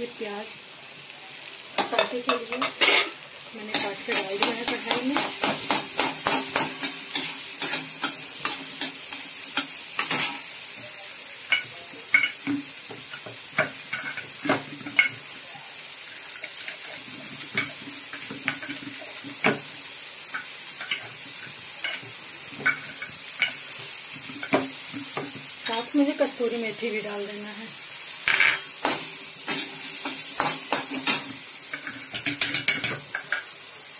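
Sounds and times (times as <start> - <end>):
onion sizzling in butter: 0.0 - 33.9
spatula scraping metal pan: 2.6 - 10.4.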